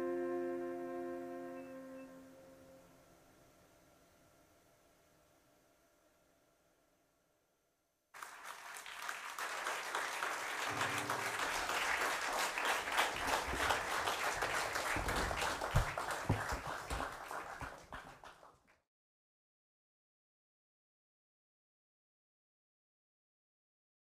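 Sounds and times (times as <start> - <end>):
audience applauding: 8.2 - 18.6.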